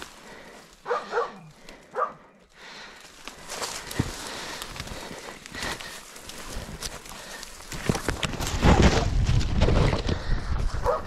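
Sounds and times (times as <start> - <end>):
footsteps rustling through dry leaves: 0.0 - 1.6, 2.7 - 8.6
dog yelping: 0.9 - 1.4.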